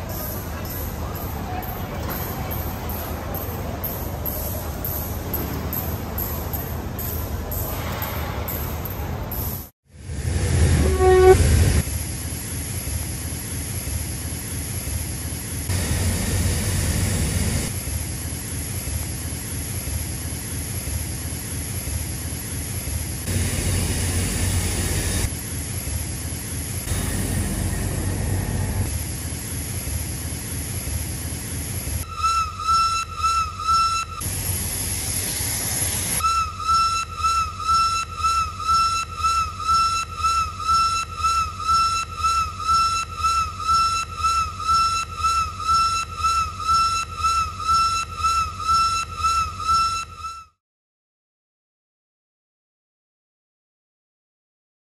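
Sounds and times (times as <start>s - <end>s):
steam locomotive hissing: 10.1s - 17.7s, 18.4s - 37.0s.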